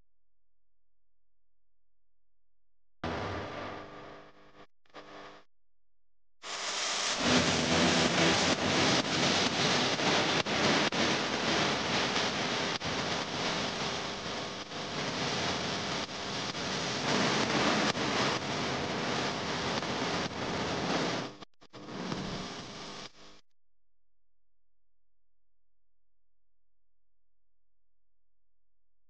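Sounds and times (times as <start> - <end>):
steady rushing noise: 6.7 - 21.3.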